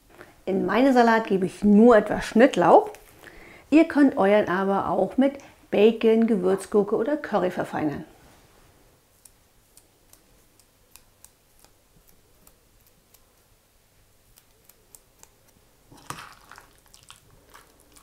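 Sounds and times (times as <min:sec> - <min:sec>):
knife snipping chives: 0:14.3 - 0:16.3.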